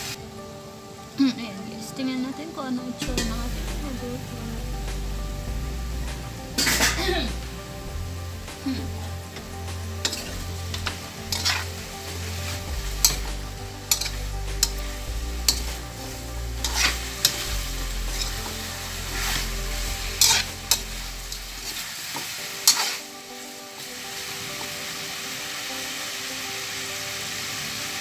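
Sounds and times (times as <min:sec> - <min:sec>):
chicken sizzling in a wok: 0:00.0 - 0:28.0
metal spatula scraping a pan: 0:06.5 - 0:08.0, 0:08.6 - 0:23.1.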